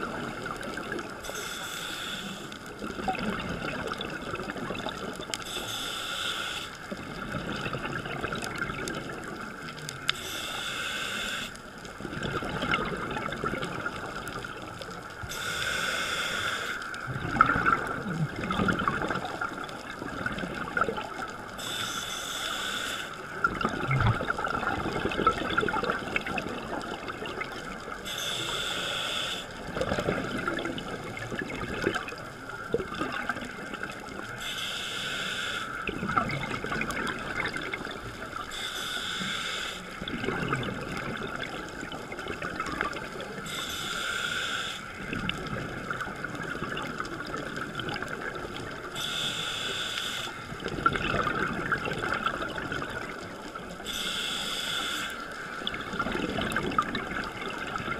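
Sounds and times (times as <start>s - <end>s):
diver breathing through regulator: 1.2s - 2.6s, 5.4s - 6.8s, 10.2s - 11.6s, 15.3s - 17.0s, 21.6s - 23.2s, 28.1s - 29.6s, 34.4s - 35.8s, 38.5s - 40.0s, 43.5s - 44.9s, 49.0s - 50.4s, 53.8s - 55.3s
exhaust bubbles rumbling: 17.1s - 21.1s, 23.4s - 27.6s, 50.5s - 53.3s, 55.6s - 57.9s.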